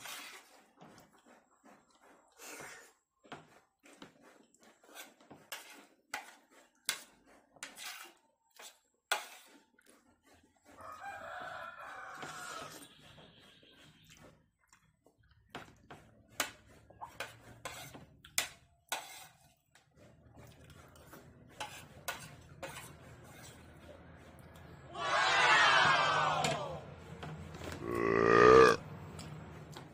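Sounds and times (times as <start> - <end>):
slurping and chewing: 0.0 - 25.1, 27.6 - 29.9
cutlery scraping on plate: 4.8 - 9.7, 16.3 - 23.7
rooster crowing: 10.8 - 12.8, 25.0 - 26.8, 27.8 - 28.8.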